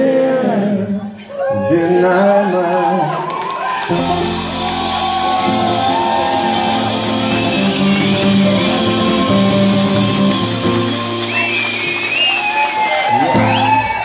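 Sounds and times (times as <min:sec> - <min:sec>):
live folk rock band playing: 0:03.9 - 0:14.0.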